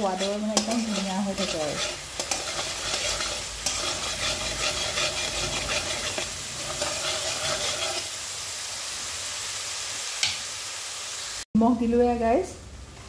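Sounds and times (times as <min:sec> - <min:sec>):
spatula stirring and scraping: 0:00.0 - 0:08.1
paste sizzling in oil: 0:00.0 - 0:11.5.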